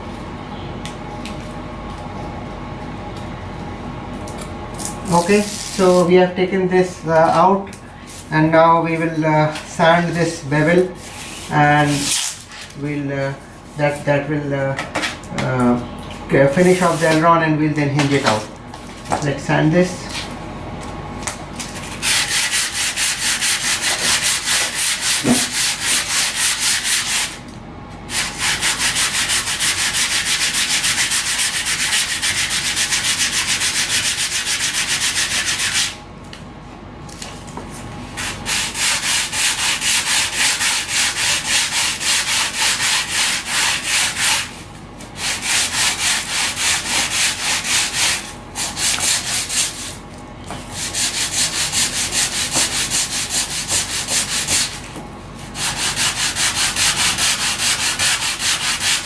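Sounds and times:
hand sanding rasping strokes: 10.0s - 12.5s, 21.8s - 27.4s, 28.1s - 36.0s, 38.2s - 44.6s, 45.2s - 50.0s, 50.8s - 54.8s, 55.4s - 59.0s.

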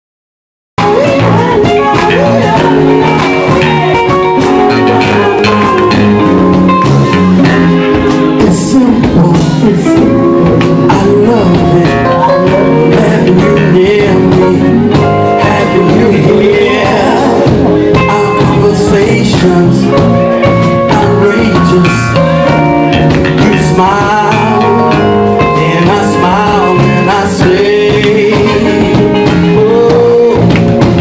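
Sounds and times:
woman singing: 0.8s - 4.0s
live band playing: 0.8s - 31.0s.

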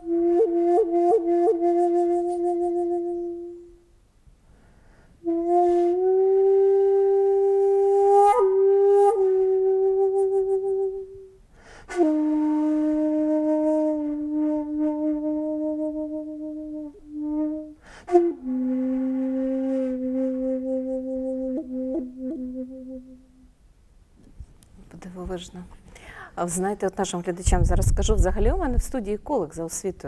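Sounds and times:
shakuhachi flute tones: 0.0s - 4.0s, 5.2s - 23.5s.

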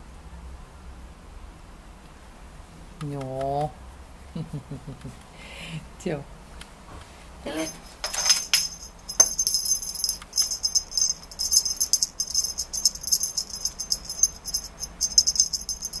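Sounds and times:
small jingle bell shaken: 7.5s - 16.0s.

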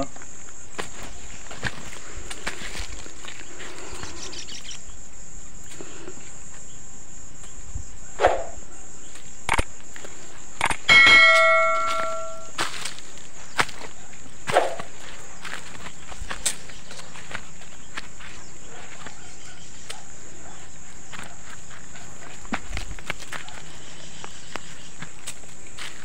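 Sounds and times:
insect drone: 0.0s - 26.0s
slipper footsteps on stony soil: 0.1s - 3.9s, 9.2s - 26.0s
bell-like ring: 10.9s - 12.5s.

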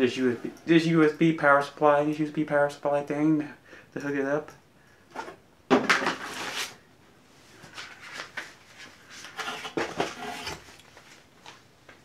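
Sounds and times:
cardboard and plastic rustling: 7.5s - 11.6s.

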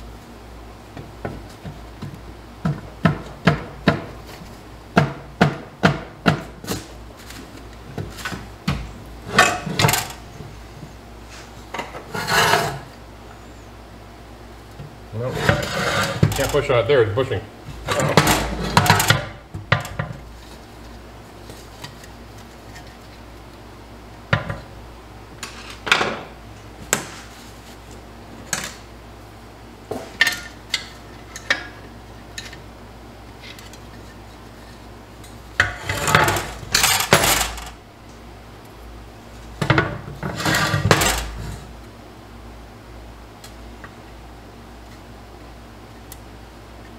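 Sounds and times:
metal parts rattling: 35.8s - 37.8s.

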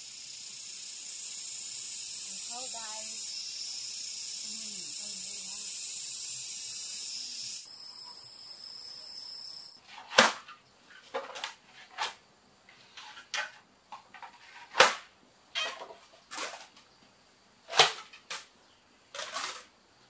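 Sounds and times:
insects buzzing: 0.0s - 20.0s
machete chopping bamboo: 10.1s - 10.5s.

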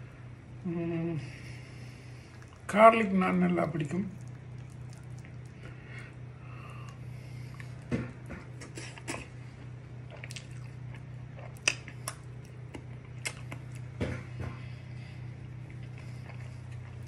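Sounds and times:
steady low hum: 0.0s - 17.0s
person chewing and lip smacking: 2.3s - 2.7s, 4.0s - 5.8s, 6.6s - 14.0s, 15.4s - 17.0s.

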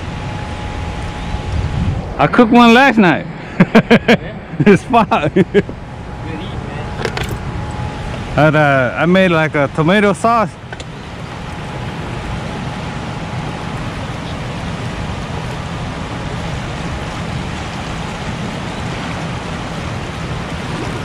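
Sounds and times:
low rumble: 0.0s - 9.0s
turbulent water rushing: 0.0s - 21.0s.

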